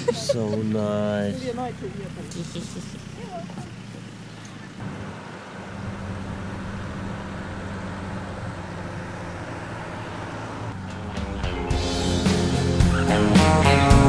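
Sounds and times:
music: 10.8s - 14.0s.

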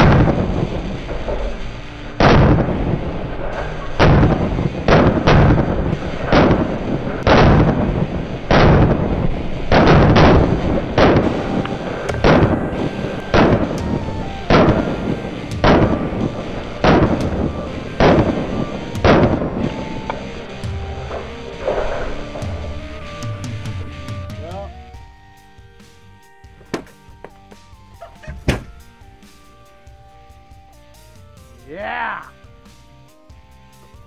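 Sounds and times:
gunshots: 0.0s - 23.7s.

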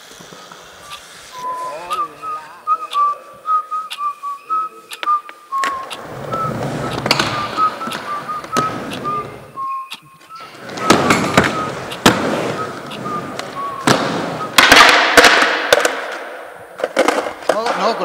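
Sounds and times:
skateboard wheels rolling on concrete: 0.0s - 18.0s
whistled tune: 0.8s - 15.0s
skateboard clacks and thuds: 5.6s - 9.5s, 10.6s - 18.0s.

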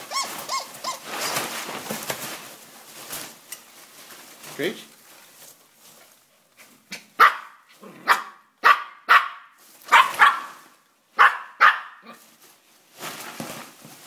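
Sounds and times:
small dog barking: 7.2s - 12.2s.

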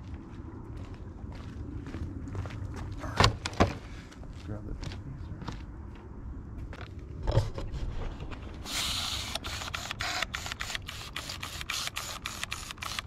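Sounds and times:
spray bottle squirts: 8.6s - 13.0s.

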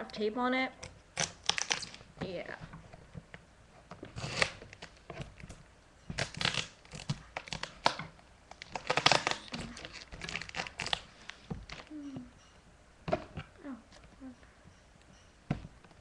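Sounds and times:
packing tape ripped off cardboard: 0.8s - 2.1s, 4.0s - 11.9s.

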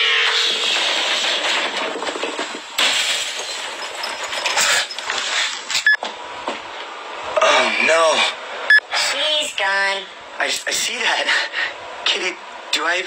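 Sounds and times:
clattering and crashing: 0.4s - 6.0s.

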